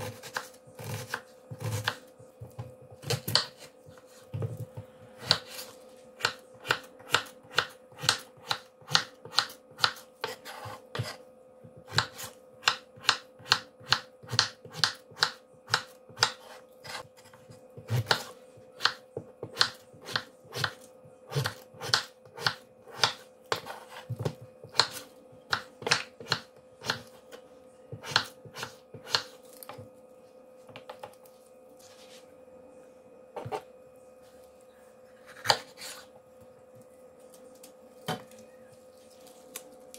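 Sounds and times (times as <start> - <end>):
knife chopping on wooden board: 0.0 - 3.7, 11.8 - 27.2, 27.9 - 29.8.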